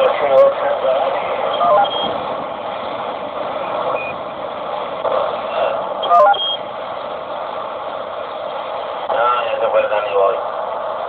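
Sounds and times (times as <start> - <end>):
radio static hiss: 0.0 - 11.0
short electronic beep tones: 1.5 - 2.2, 3.9 - 4.2, 6.0 - 6.6.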